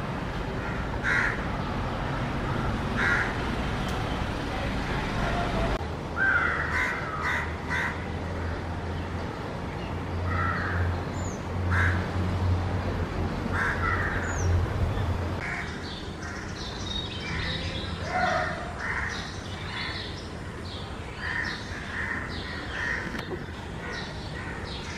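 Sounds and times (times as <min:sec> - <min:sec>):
crows cawing: 0:00.6 - 0:01.4, 0:02.5 - 0:03.4, 0:06.2 - 0:08.0, 0:10.3 - 0:10.9, 0:11.7 - 0:12.0, 0:13.5 - 0:14.3, 0:21.2 - 0:24.9.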